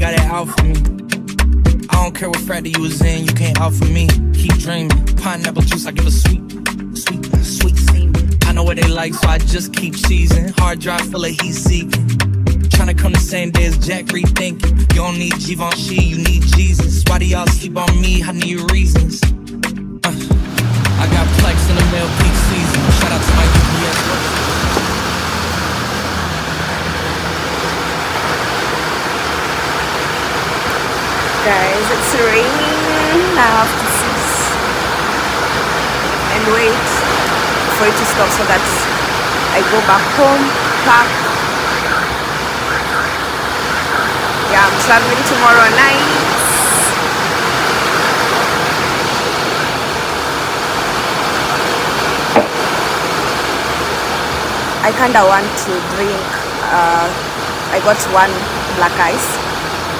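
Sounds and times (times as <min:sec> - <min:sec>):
rain falling: 0:20.3 - 0:59.9.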